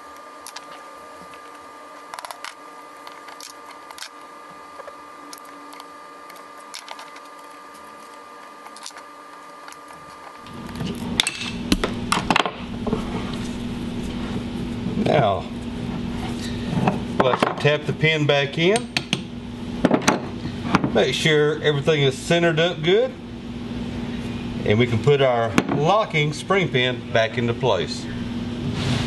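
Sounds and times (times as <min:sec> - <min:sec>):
handling noise: 0:00.0 - 0:14.6.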